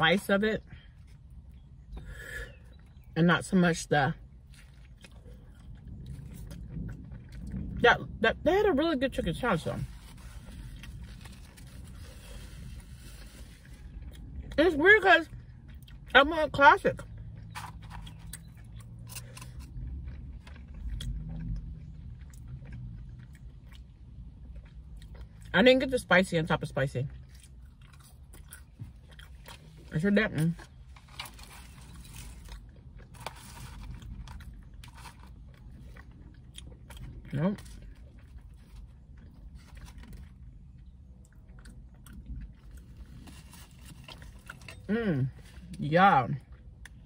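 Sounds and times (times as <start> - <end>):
low steady hum: 0.0 - 47.0
person chewing food: 4.2 - 7.8, 9.8 - 14.6, 15.3 - 16.1, 17.0 - 25.5, 27.2 - 45.8.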